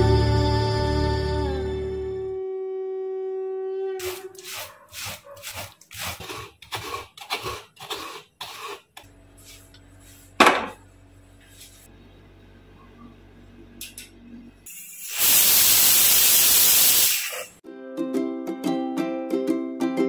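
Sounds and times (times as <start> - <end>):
fruit rasping against bamboo basket: 4.0 - 9.1
low steady hum: 9.0 - 14.7.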